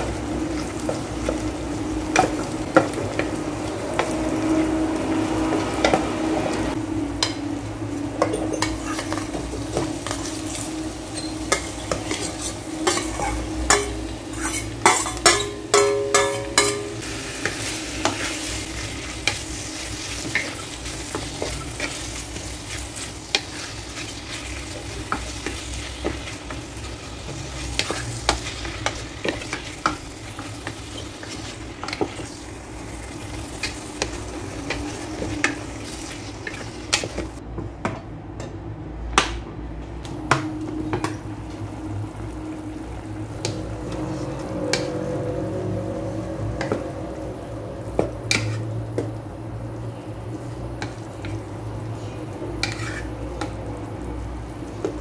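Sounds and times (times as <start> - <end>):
meat sizzling in oil: 0.0 - 37.4
wooden spatula stirring and scraping: 52.5 - 53.2.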